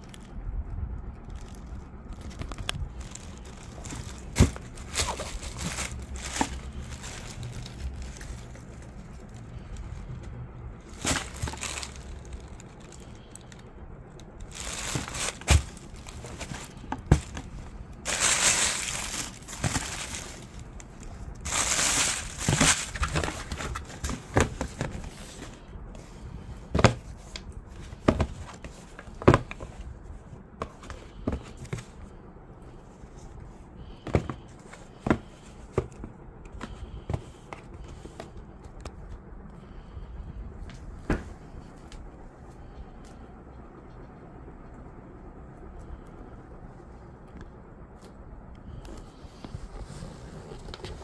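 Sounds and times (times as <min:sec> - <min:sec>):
cardboard crinkling: 0:01.3 - 0:13.7, 0:14.4 - 0:29.8.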